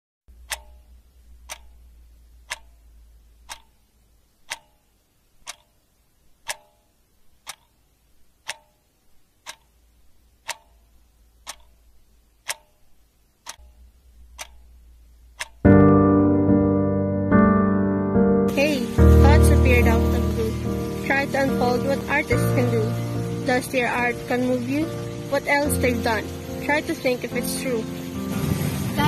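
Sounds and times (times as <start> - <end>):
clock ticking: 0.3 - 16.0, 18.5 - 28.3
faint low hum: 0.3 - 16.6.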